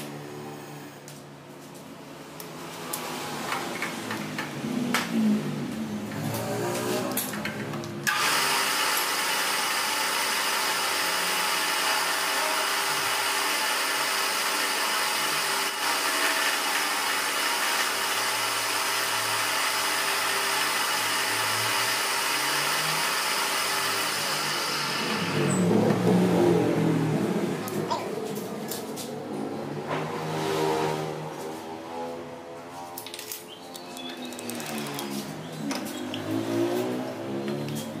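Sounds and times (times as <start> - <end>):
milling machine whirring: 8.1 - 26.0.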